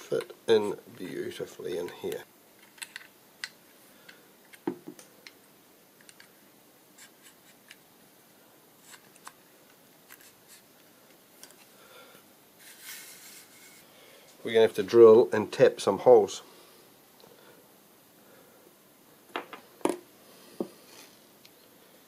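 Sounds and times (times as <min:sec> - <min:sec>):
small clicks and light scraping: 0:01.8 - 0:05.4, 0:06.0 - 0:06.4.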